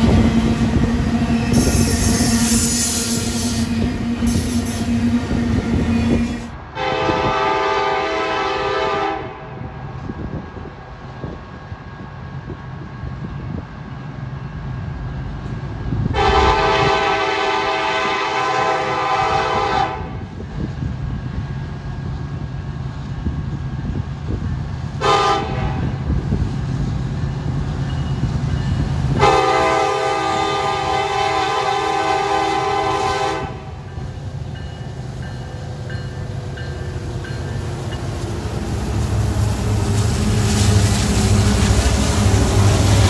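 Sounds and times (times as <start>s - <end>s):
diesel locomotive engine rumble: 0.0s - 43.0s
train air horn blasts: 1.4s - 9.6s, 16.1s - 20.3s, 25.0s - 26.0s, 29.2s - 33.8s.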